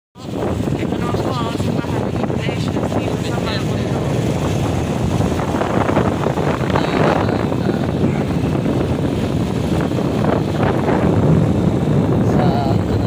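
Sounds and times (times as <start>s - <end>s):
road noise: 0.2s - 13.0s
wind rushing over microphone: 0.2s - 13.0s
motorcycle engine running: 3.0s - 13.0s.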